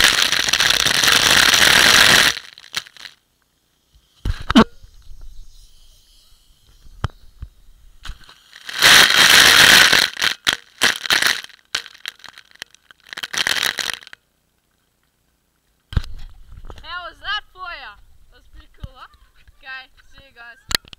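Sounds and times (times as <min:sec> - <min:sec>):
crackling water drops: 0:00.0 - 0:03.2, 0:08.0 - 0:14.2
hose water spraying on camera: 0:03.8 - 0:12.2.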